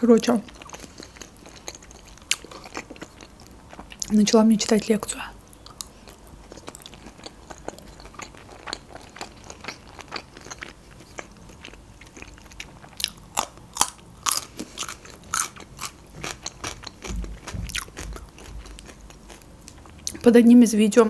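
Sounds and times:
wet chewing and mouth clicks: 0:00.5 - 0:04.2, 0:05.5 - 0:20.3
crisp crunching of cucumber: 0:05.7 - 0:20.2.

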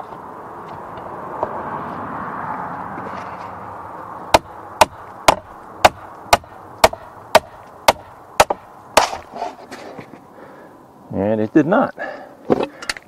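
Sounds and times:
hammer knocking wooden shingle: 0:04.3 - 0:09.2.

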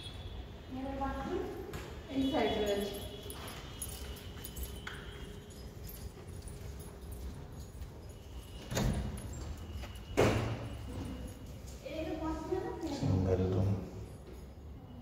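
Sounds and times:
wooden door and bolt rattling: 0:05.8 - 0:10.8.

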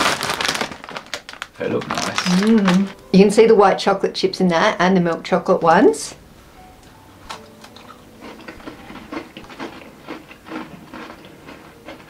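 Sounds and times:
crunchy cookies being chewed: 0:00.0 - 0:03.0, 0:07.3 - 0:12.0.

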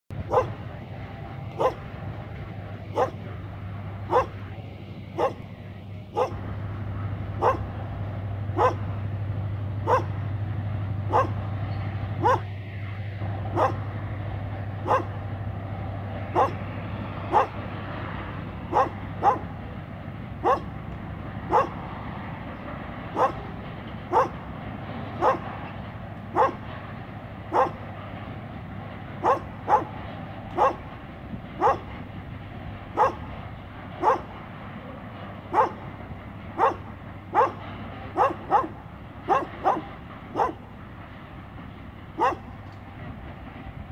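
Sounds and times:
freight train hum: 0:00.0 - 0:43.9
dog barking: 0:00.3 - 0:00.6, 0:01.5 - 0:01.9, 0:02.9 - 0:03.2, 0:04.1 - 0:04.5, 0:05.2 - 0:05.5, 0:06.1 - 0:06.4, 0:07.4 - 0:07.7, 0:08.6 - 0:08.9, 0:09.8 - 0:10.2, 0:11.1 - 0:11.4, 0:12.2 - 0:12.6, 0:13.5 - 0:13.9, 0:14.8 - 0:15.2, 0:16.3 - 0:16.7, 0:17.3 - 0:17.6, 0:18.7 - 0:19.6, 0:20.4 - 0:20.8, 0:21.5 - 0:21.8, 0:23.2 - 0:23.5, 0:24.1 - 0:24.4, 0:25.2 - 0:25.5, 0:26.3 - 0:26.7, 0:27.5 - 0:27.9, 0:29.2 - 0:30.0, 0:30.6 - 0:30.9, 0:31.6 - 0:31.9, 0:33.0 - 0:33.3, 0:34.0 - 0:34.3, 0:35.5 - 0:35.9, 0:36.6 - 0:37.6, 0:38.2 - 0:40.6, 0:42.2 - 0:42.5.

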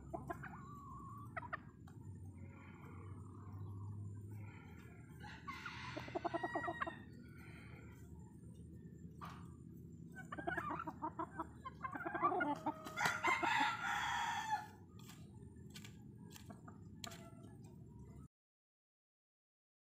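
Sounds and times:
chickens clucking: 0:00.0 - 0:18.3
rooster crowing: 0:05.1 - 0:07.1, 0:12.4 - 0:14.8.

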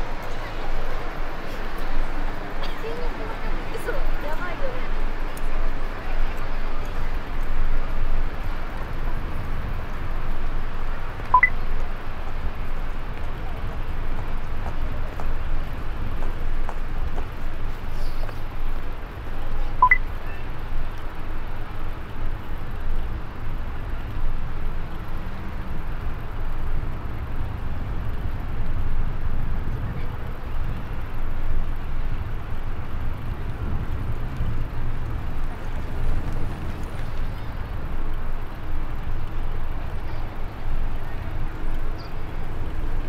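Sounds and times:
city ambience rumble: 0:00.0 - 0:43.0
short high beep: 0:11.4 - 0:11.6, 0:19.8 - 0:20.0.

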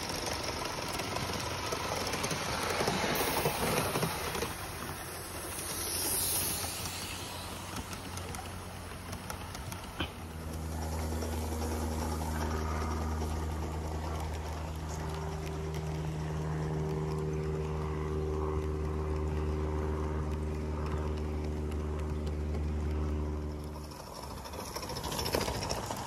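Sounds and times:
higher motor whine: 0:00.0 - 0:26.0
model locomotive motor humming: 0:00.0 - 0:26.0.

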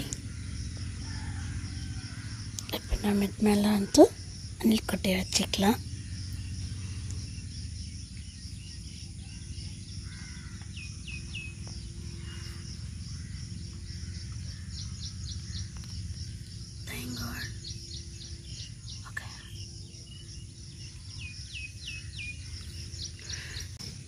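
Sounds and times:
small birds chirping: 0:00.0 - 0:24.0
steady low rumble: 0:00.0 - 0:24.0.

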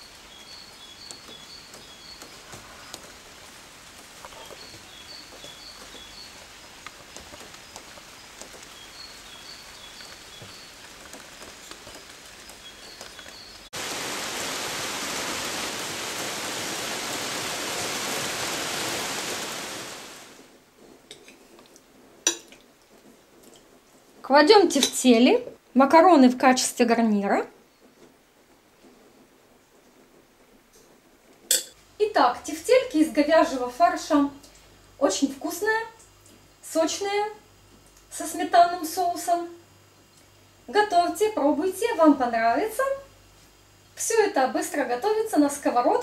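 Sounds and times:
songbird chirping: 0:00.0 - 0:13.8
loud rushing rain: 0:00.0 - 0:20.8
light rain falling: 0:00.0 - 0:46.0.

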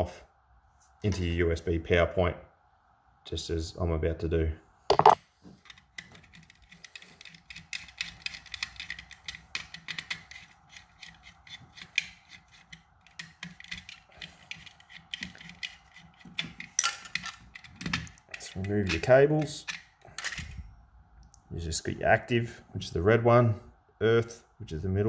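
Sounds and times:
screwdriver clicking and scraping: 0:04.9 - 0:20.6.

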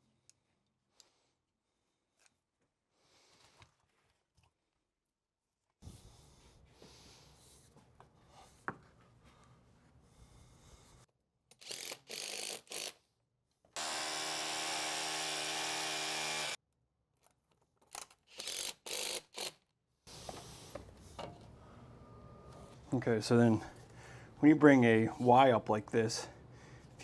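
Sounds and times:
power drill whirring: 0:13.8 - 0:16.6.

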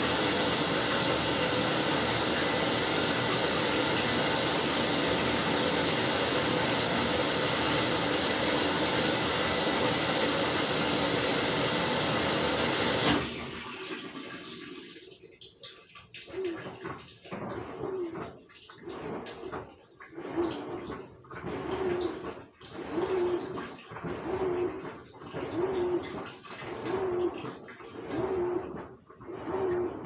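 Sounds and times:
washing machine running: 0:00.0 - 0:30.0
water sloshing in drum: 0:13.3 - 0:30.0.

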